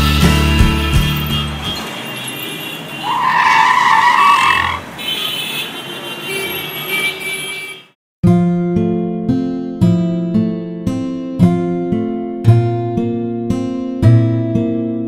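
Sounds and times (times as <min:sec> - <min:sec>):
street traffic noise: 0:00.0 - 0:08.0
brakes screeching: 0:00.8 - 0:05.8
strummed acoustic guitar music: 0:08.3 - 0:15.0.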